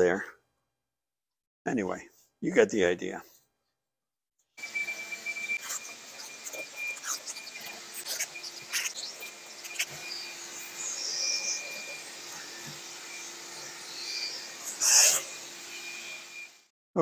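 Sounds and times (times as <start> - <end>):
shop vac motor running: 4.6 - 16.7
scratchy bristle sounds: 5.4 - 12.8, 13.7 - 15.3.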